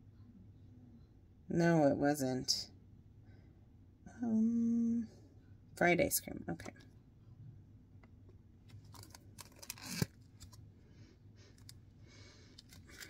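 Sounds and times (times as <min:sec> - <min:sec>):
plastic clamshell crackling: 0:08.7 - 0:10.6, 0:12.5 - 0:13.0.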